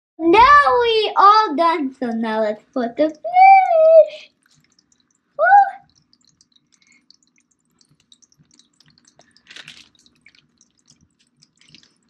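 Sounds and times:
water dripping and splashing: 0.4s - 12.0s.

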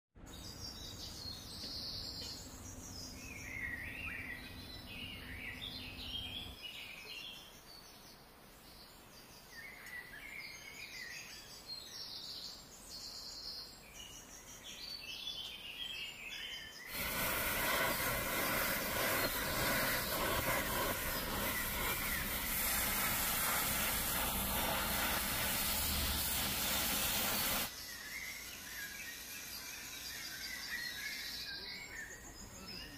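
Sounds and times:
small birds chirping: 0.2s - 32.9s
gas torch flame hissing: 16.9s - 27.7s
low hum: 17.0s - 27.7s.

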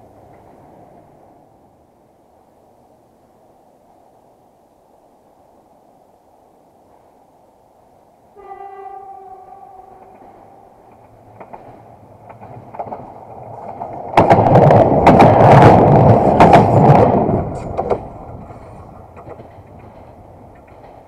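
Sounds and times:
train wheels clattering on rails: 0.0s - 1.3s, 9.0s - 21.0s
faint ticks from rails: 0.0s - 1.6s, 8.9s - 21.0s.

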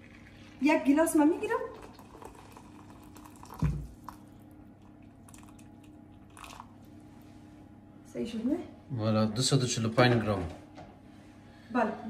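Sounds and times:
water trickling into jug: 0.0s - 6.9s.

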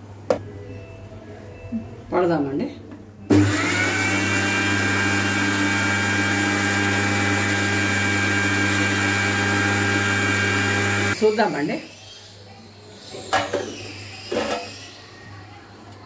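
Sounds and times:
mixer grinder motor whine: 3.3s - 11.9s.

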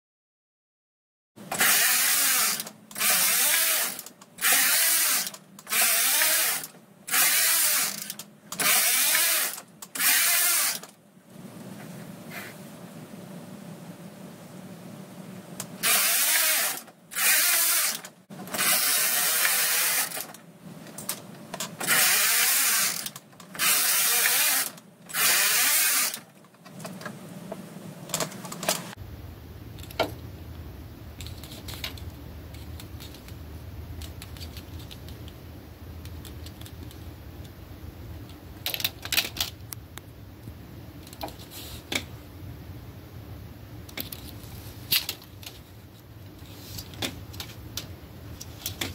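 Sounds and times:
steady low hum: 11.0s - 15.9s, 26.3s - 48.9s.

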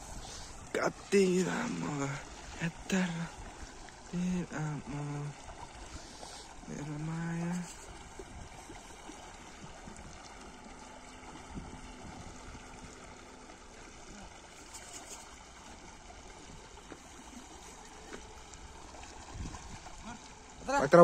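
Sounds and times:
shallow river water rushing: 0.0s - 21.0s.

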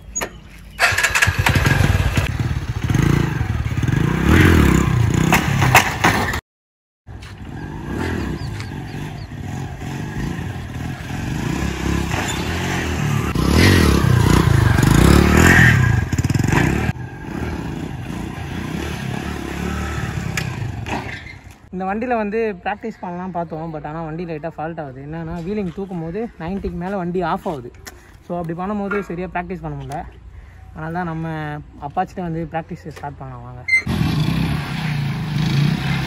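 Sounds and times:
motorcycle engine revving: 0.8s - 6.4s, 7.3s - 21.0s, 33.8s - 36.0s.

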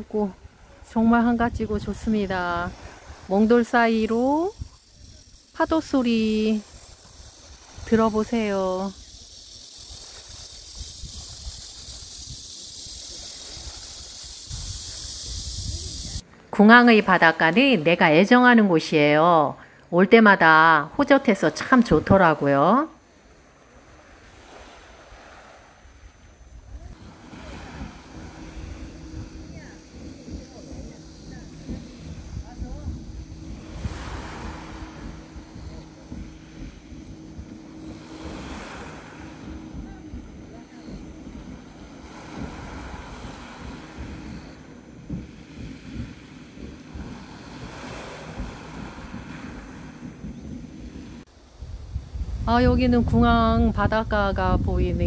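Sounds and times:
wind on microphone: 0.0s - 19.2s, 23.9s - 55.0s
waves washing over pebbles: 26.9s - 51.3s.

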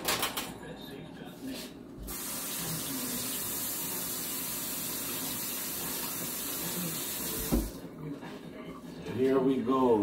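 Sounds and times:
faucet running into metal sink: 2.1s - 7.8s.

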